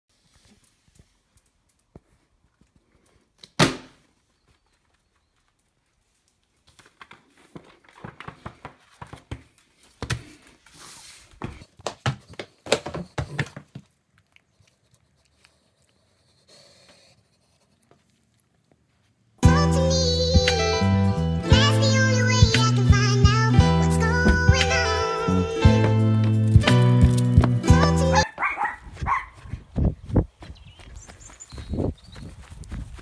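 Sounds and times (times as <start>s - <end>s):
small dog panting: 14.2s - 18.5s.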